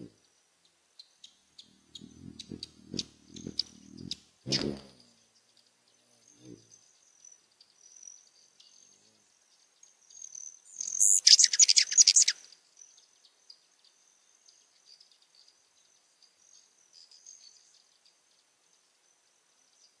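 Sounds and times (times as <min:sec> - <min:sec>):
hummingbird chattering chips: 0:01.2 - 0:05.2, 0:10.1 - 0:12.5.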